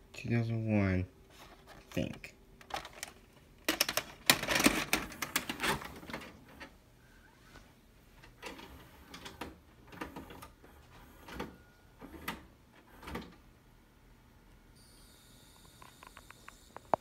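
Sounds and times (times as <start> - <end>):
tape mechanism clicking and clunking: 2.1 - 6.7.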